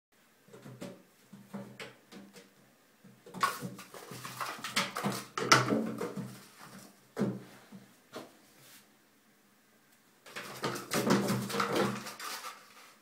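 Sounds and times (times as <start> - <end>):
kitten claws skittering on bathtub: 10.3 - 13.0.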